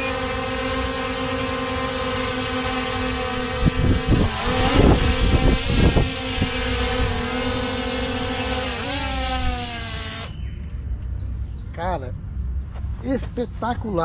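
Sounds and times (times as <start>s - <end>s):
drone propeller whine: 0.0s - 12.7s
wind buffeting on microphone: 3.1s - 9.7s.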